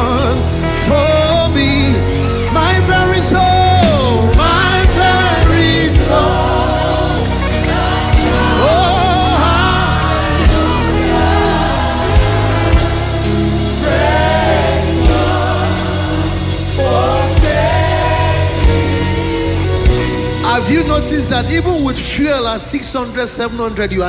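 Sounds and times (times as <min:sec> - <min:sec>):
person singing: 0:00.0 - 0:21.1
sustained keyboard chords: 0:00.0 - 0:23.0
drum kit hits: 0:03.8 - 0:20.6.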